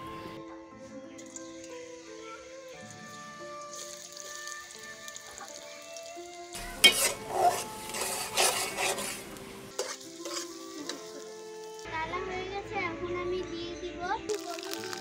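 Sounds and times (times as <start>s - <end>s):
onions sizzling in oil: 1.2s - 11.9s, 14.3s - 15.0s
metal spatula scraping pan: 6.6s - 11.2s.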